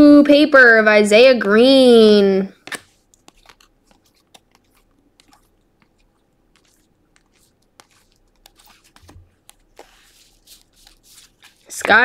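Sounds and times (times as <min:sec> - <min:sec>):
trading cards flipped by hand: 0:02.6 - 0:12.0.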